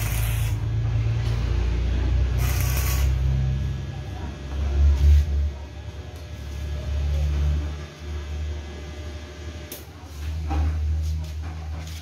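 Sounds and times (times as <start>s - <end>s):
arc welding crackling hiss: 0.0s - 0.8s, 2.3s - 3.4s.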